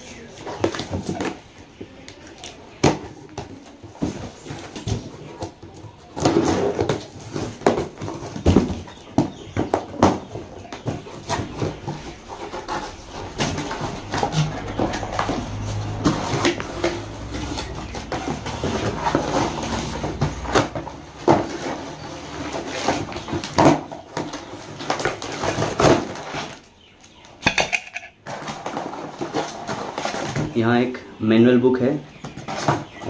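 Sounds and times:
cardboard rustling and scraping: 3.3 - 26.7, 28.2 - 30.6.

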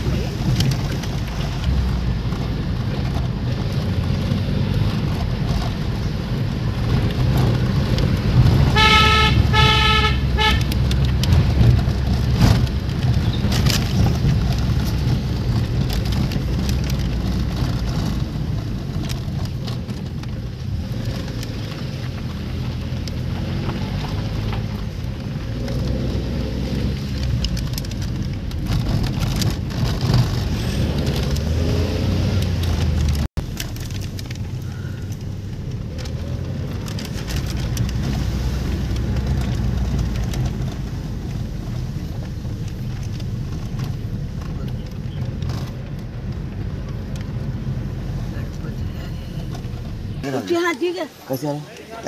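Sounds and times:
car engine and tyre rumble: 0.0 - 52.0
car horn short toots: 8.7 - 10.8.

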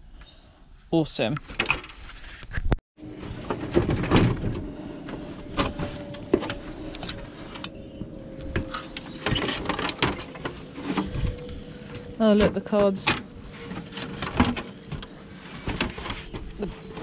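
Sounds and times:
plastic knocks and scrapes: 12.8 - 17.0.

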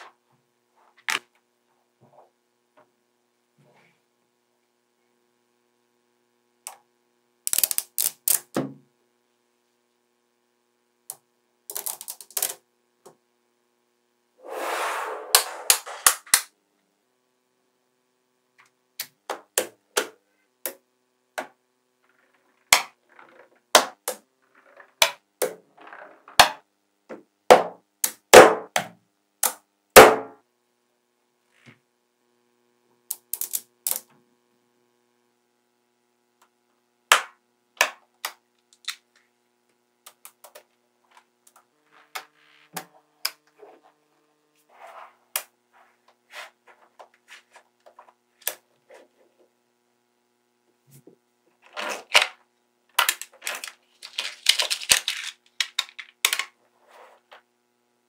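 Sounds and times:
magnetic balls clicking together: 7.5 - 8.6, 11.1 - 12.6, 33.1 - 34.1.

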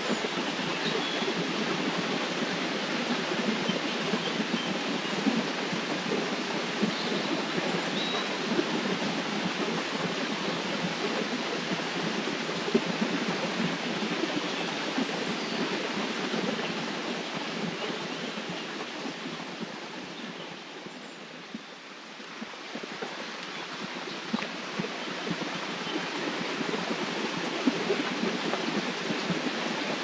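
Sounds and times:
river water rushing: 0.0 - 30.0.

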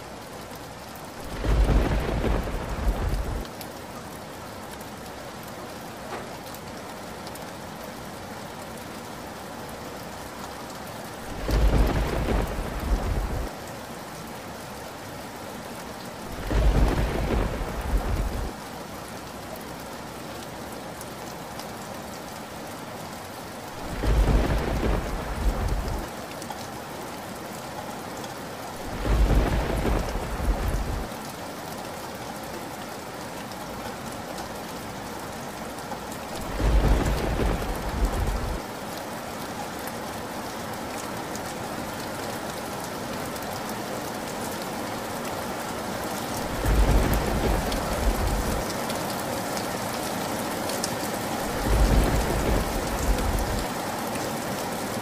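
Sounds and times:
steady rain falling: 0.0 - 55.0
thunder rumbles: 1.2 - 3.5, 11.3 - 13.5, 16.3 - 18.5, 23.8 - 26.1, 28.8 - 31.1, 36.4 - 38.6, 46.4 - 48.7, 51.5 - 53.7.

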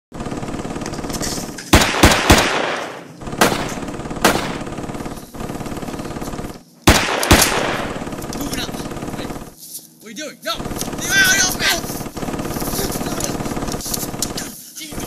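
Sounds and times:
steady background drone: 0.2 - 15.0
gunshots with echoing tail: 1.8 - 5.1, 6.9 - 8.2.

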